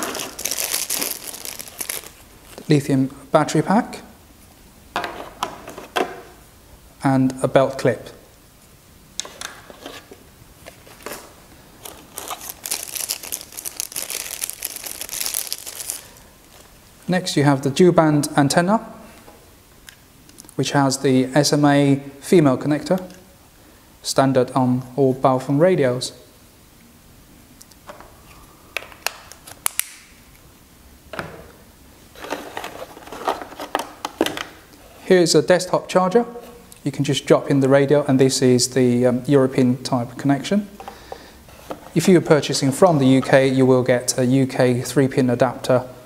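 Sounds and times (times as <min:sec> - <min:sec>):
plastic bag crinkling: 0:00.0 - 0:02.7, 0:10.7 - 0:16.8.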